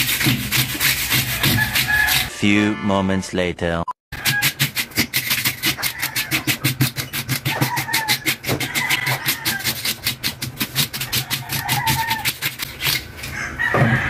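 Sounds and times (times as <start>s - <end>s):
fish scaler scraping scales: 0.0s - 2.4s, 4.1s - 13.4s.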